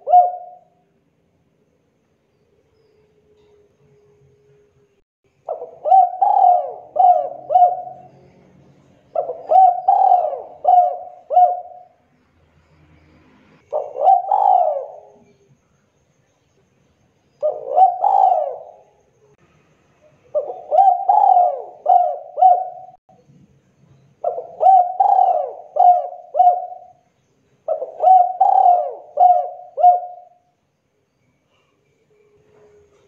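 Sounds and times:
dove cooing: 0.0s - 0.8s, 5.5s - 8.3s, 9.0s - 12.0s, 13.6s - 15.4s, 17.4s - 19.0s, 20.3s - 23.0s, 24.2s - 27.0s, 27.6s - 30.5s.

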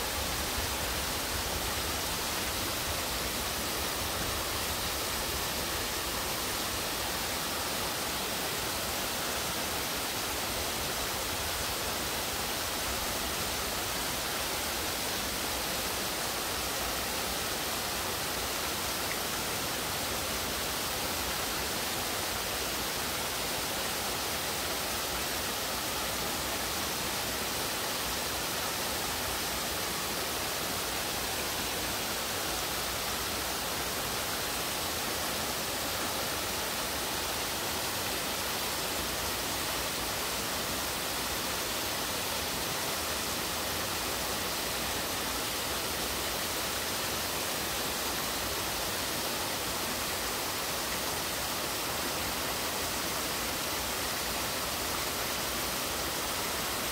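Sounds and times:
waterfalls pouring into a pool: 0.0s - 56.9s.

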